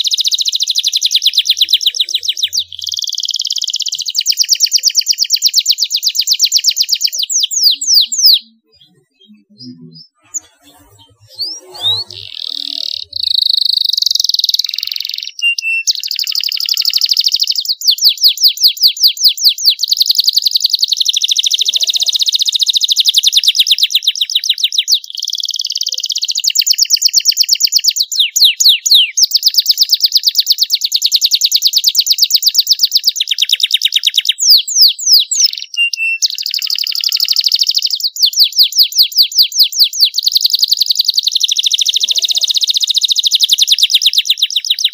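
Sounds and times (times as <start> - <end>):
canary singing: 0.0 - 44.9.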